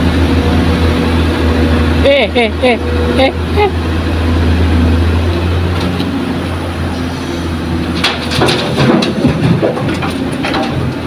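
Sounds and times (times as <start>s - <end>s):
diesel engine working hard: 0.0s - 11.0s
sharp clattering knocks: 7.9s - 11.0s.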